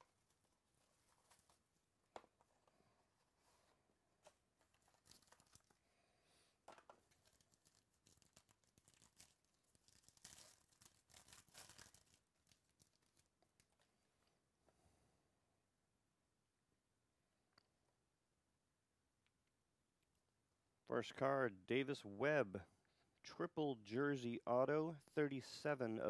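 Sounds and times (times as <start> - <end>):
small rustles and clicks: 4.2 - 5.8, 6.7 - 14.4
foil pack crinkling and tearing: 4.8 - 5.8, 7.1 - 13.8.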